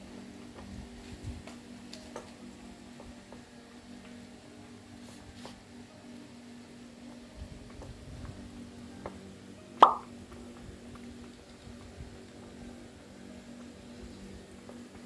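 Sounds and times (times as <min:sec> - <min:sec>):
air bubble gulping into water bottle: 0:09.8 - 0:10.1
watery plop: 0:09.8 - 0:10.1.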